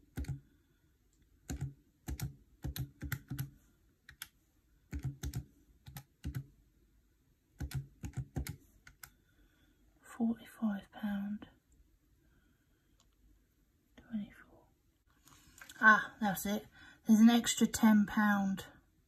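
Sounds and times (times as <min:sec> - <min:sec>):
calculator buttons clicking: 0:01.4 - 0:04.3, 0:04.9 - 0:06.5, 0:07.6 - 0:09.1.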